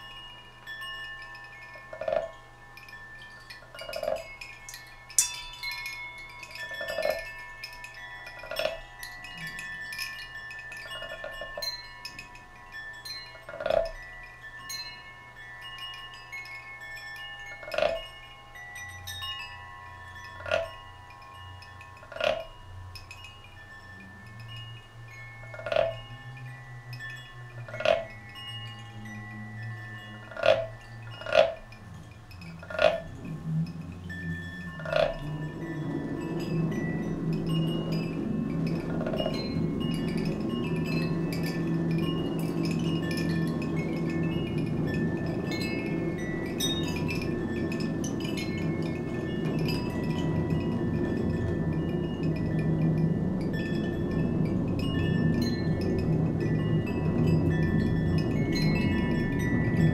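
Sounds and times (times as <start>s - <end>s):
hanging metal chimes ringing: 0.0s - 59.9s
low hum: 24.0s - 59.9s.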